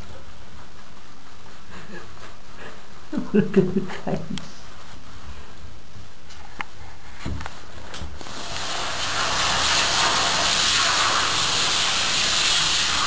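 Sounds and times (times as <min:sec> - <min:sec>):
shower head spraying water: 0:08.2 - 0:13.0.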